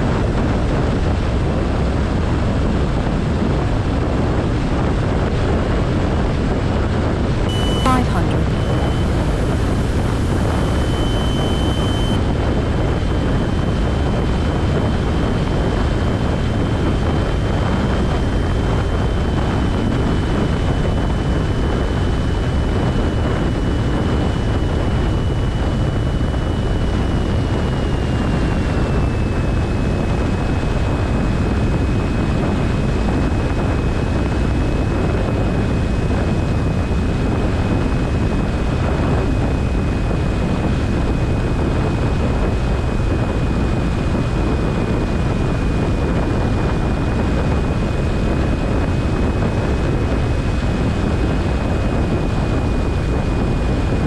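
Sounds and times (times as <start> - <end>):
airflow around cabin: 0.0 - 54.0
airplane engine and propeller: 0.0 - 54.0
thin high whine: 7.5 - 15.0.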